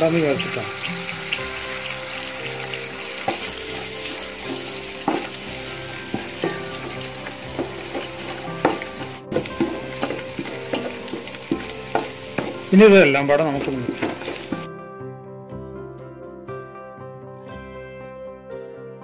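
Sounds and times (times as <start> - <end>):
eggs sizzling in oil: 0.0 - 14.7
spatula scraping and knocking pot: 3.2 - 14.7.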